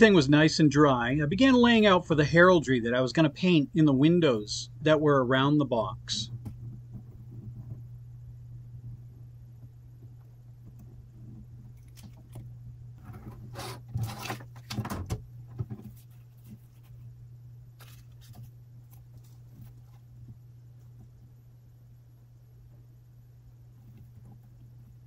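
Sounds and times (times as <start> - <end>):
steady low hum: 0.0 - 25.0
paper rustling: 13.0 - 15.0, 15.6 - 17.1, 17.8 - 20.1.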